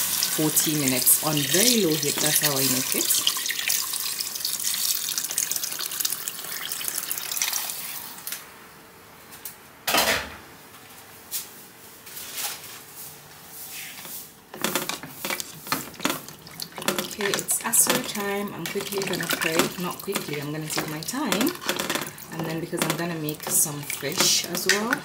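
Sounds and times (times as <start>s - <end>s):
water pouring into a pot: 0.0s - 8.3s, 14.6s - 25.0s
spoon clattering in a pot: 14.6s - 25.0s.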